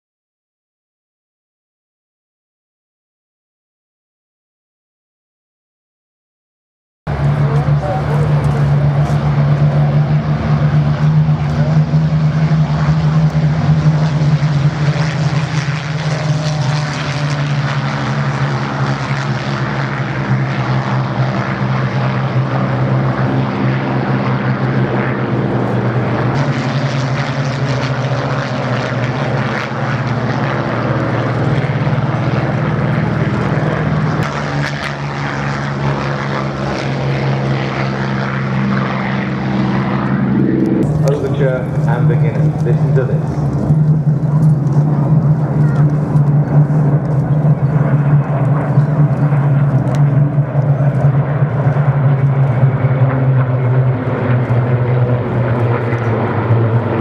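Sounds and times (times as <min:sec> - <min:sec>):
propeller planes droning past: 0:07.1 - 0:57.0.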